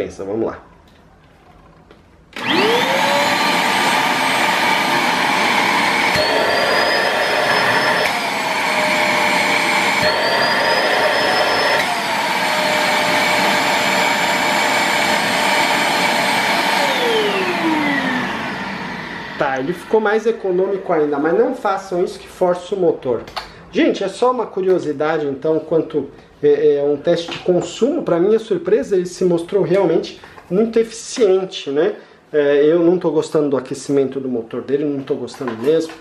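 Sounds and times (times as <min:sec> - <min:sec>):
vacuum cleaner motor whining: 0:02.4 - 0:21.1.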